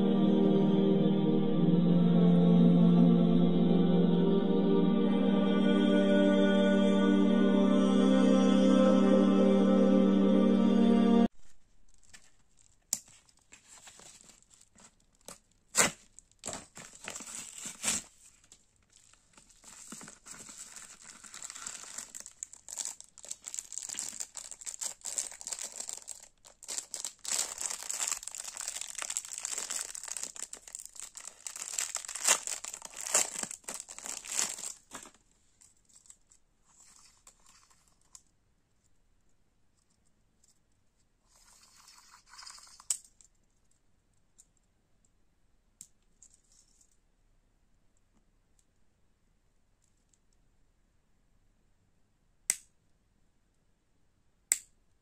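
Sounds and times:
plastic packaging crinkling and tearing: 11.9s - 35.2s.

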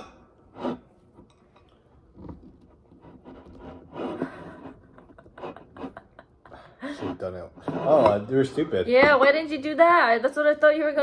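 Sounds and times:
fork and knife scraping: 0.0s - 6.2s, 6.9s - 8.3s.

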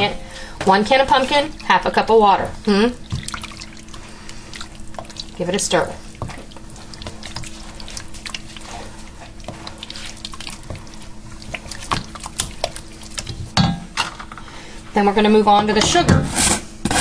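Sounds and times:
spoon stirring thick puree: 0.0s - 13.6s
steady low hum: 0.0s - 17.0s.

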